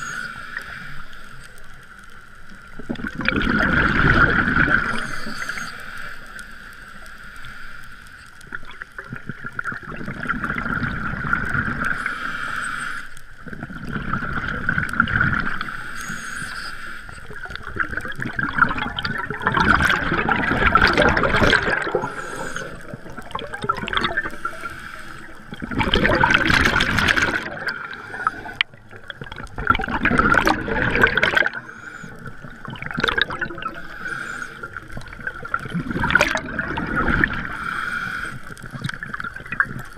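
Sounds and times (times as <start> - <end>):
diver exhaling bubbles underwater: 2.8 - 5.7, 17.6 - 24.7, 25.4 - 39.9.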